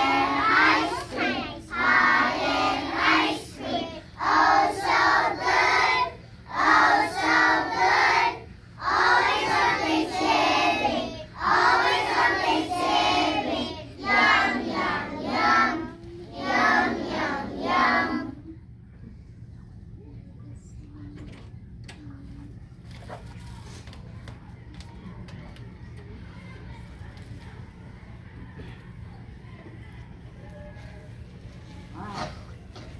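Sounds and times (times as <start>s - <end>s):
children singing together: 0.0s - 18.4s.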